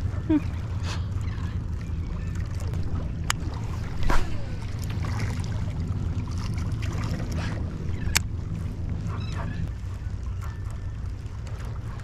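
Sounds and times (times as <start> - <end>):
wind rumble on microphone: 0.0 - 12.0
fish splashing on water: 2.2 - 7.6.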